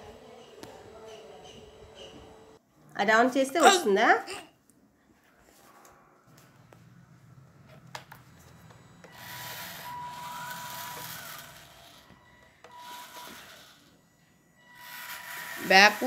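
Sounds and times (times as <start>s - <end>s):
small gear motors whirring: 8.7s - 16.0s.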